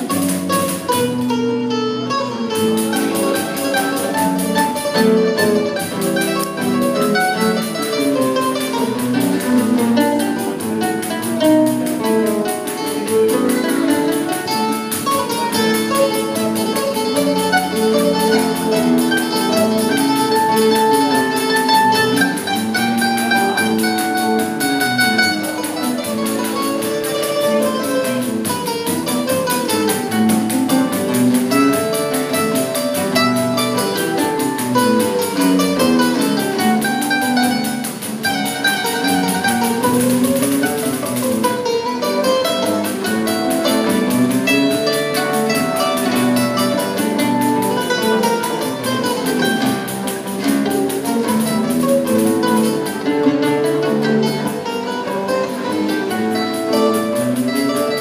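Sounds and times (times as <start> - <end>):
acoustic guitar accompaniment: 0.0 - 58.0
pandeiro: 0.0 - 58.0
plucked melody: 0.0 - 58.0.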